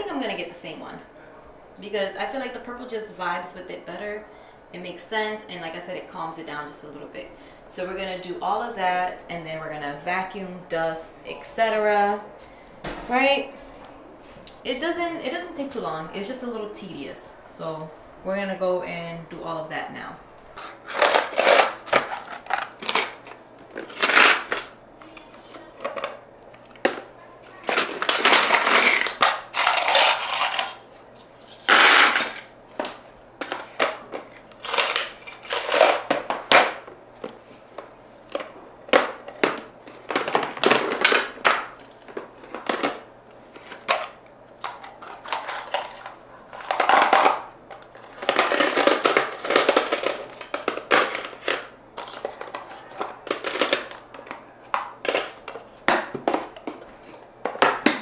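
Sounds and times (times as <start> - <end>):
faint steady hum: 0.0 - 58.0
hard objects clattering: 20.5 - 37.4, 38.3 - 58.0.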